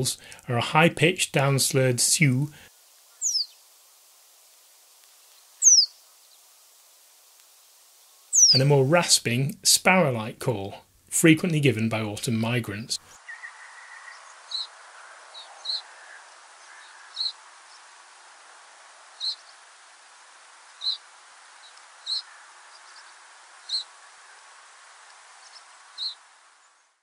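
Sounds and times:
faint background noise: 0.0 - 27.0
bird giving rasping calls: 3.2 - 3.5, 5.6 - 5.9, 8.3 - 8.6, 15.4 - 17.4, 22.0 - 22.4.

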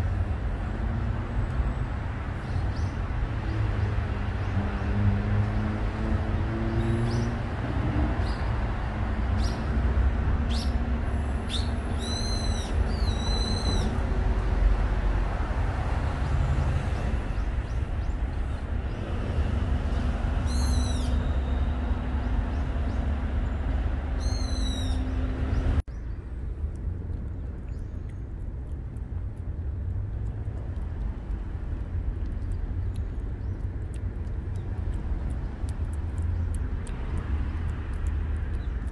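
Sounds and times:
low rumble of wind or traffic: 0.0 - 38.9
small birds chirping: 11.4 - 14.0, 19.8 - 26.3, 32.0 - 38.9.

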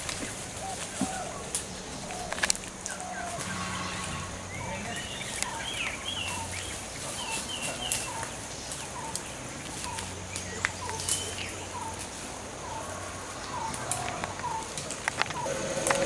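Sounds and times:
twigs snapping underfoot: 0.0 - 3.1, 7.1 - 12.2, 13.4 - 16.0
birds chirping and whistling: 0.0 - 12.0, 12.6 - 16.0.

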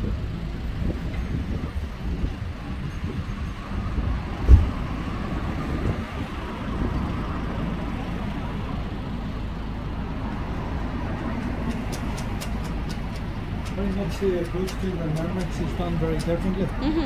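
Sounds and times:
car engine and road rumble: 0.0 - 17.0
thump: 4.4 - 4.8.

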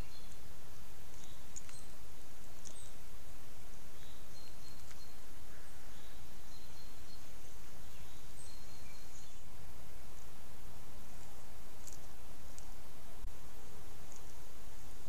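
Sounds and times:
forest ambience: 0.0 - 15.0
microphone hiss: 0.0 - 15.0
high bird chirps: 3.9 - 9.4.

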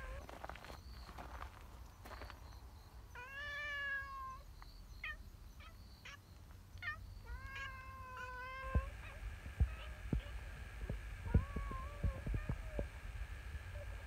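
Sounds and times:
cat meowing: 6.8 - 10.3.

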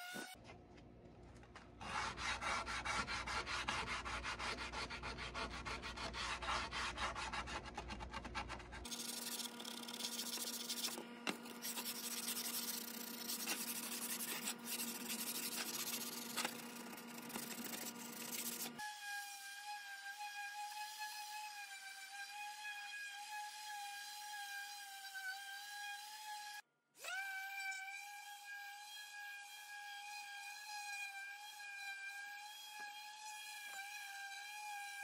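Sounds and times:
hand sanding wood: 1.8 - 18.8.

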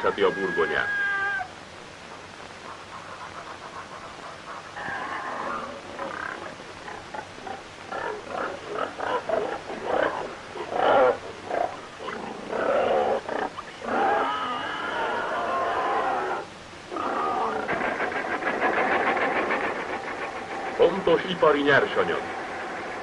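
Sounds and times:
geese calling: 0.0 - 16.2, 16.9 - 23.0
pigs grunting and squealing: 4.8 - 21.4.

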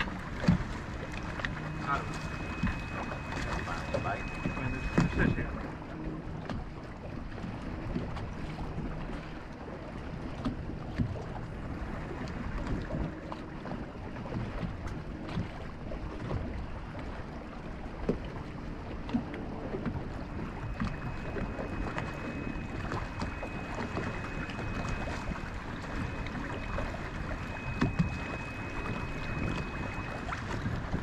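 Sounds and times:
faint high whine: 0.0 - 6.1, 19.5 - 30.7
waves lapping against boat hull: 0.0 - 31.0.

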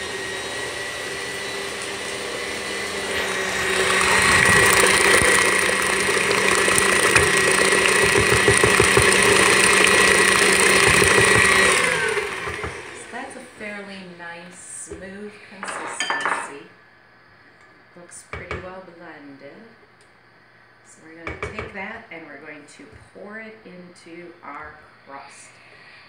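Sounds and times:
stand mixer motor whine: 0.0 - 13.5.

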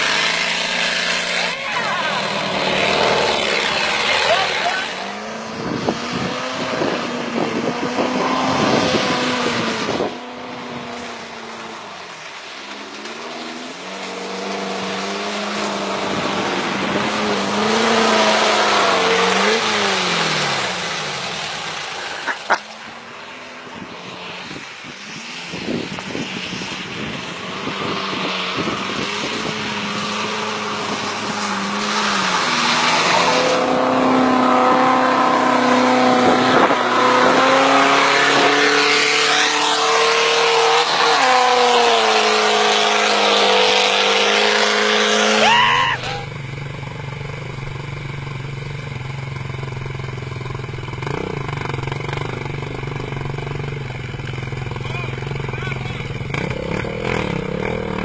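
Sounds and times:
car engines revving: 0.0 - 58.0.

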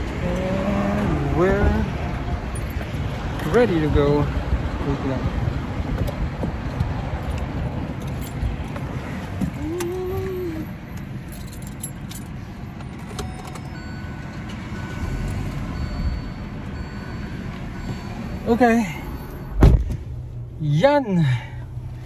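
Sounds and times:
traffic rumble: 0.0 - 22.0
keys jangling: 7.2 - 9.9, 10.9 - 14.6.

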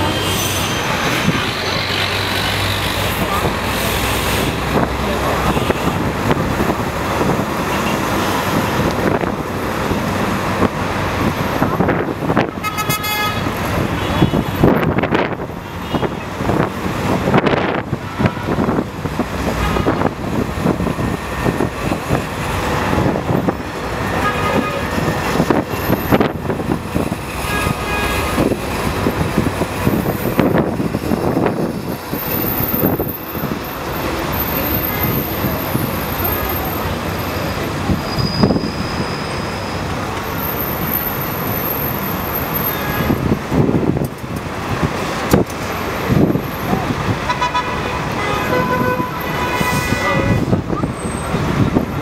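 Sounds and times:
dense road traffic: 0.0 - 52.0
vehicle horn tooting: 12.6 - 14.6, 27.4 - 28.4, 47.3 - 50.5.

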